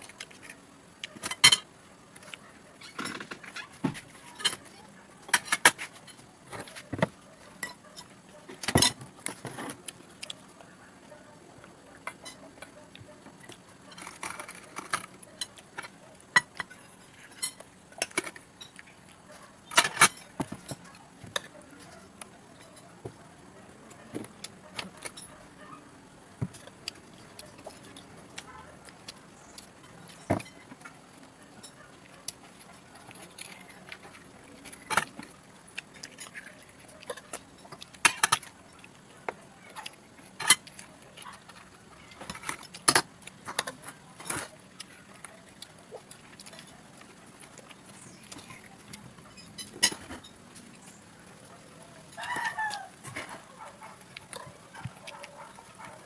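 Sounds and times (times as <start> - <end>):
sea urchin shells cracking: 52.1 - 56.0.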